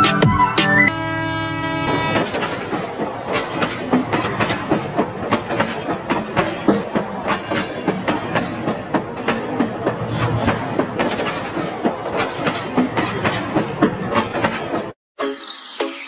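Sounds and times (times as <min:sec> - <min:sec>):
toy train clattering on rails: 0:02.2 - 0:14.9.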